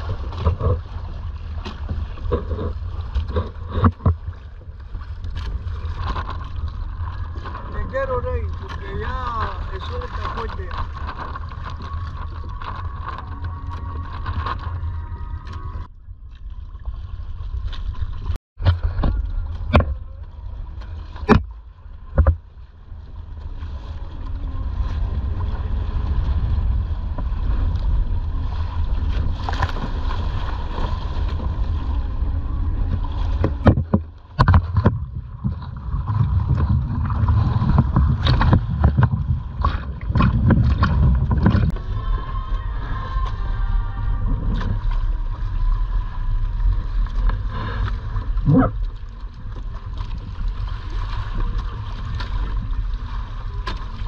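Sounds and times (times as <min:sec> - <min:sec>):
water rushing along hull: 0:00.0 - 0:54.0
waves slapping boat: 0:00.0 - 0:54.0
wind buffeting microphone: 0:22.2 - 0:48.8.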